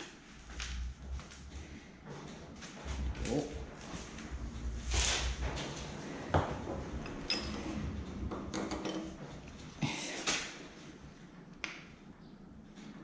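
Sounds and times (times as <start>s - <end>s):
metal clinks and knocks: 6.9s - 9.6s.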